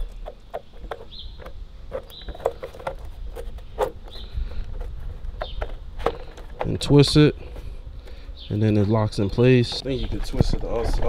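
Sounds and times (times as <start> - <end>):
plastic clicks and knocks: 0.0 - 7.2.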